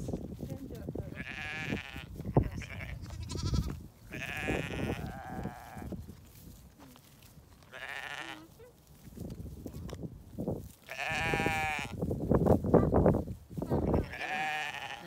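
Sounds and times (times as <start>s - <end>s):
sheep bleating: 1.2s - 5.9s, 7.7s - 8.6s, 10.9s - 12.0s, 13.8s - 15.0s.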